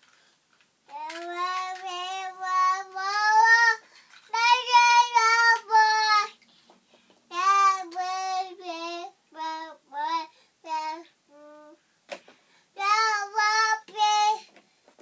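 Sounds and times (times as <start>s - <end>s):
baby singing without words: 0.9s - 6.4s, 7.3s - 11.8s, 12.8s - 14.6s.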